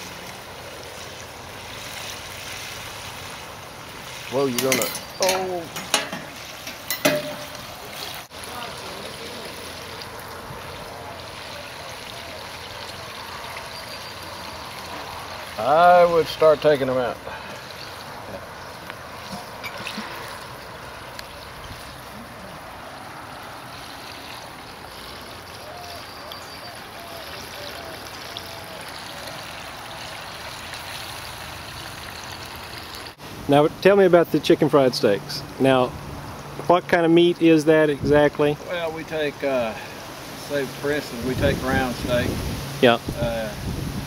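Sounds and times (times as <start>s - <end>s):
steaks deep-frying in oil: 0.0s - 35.1s.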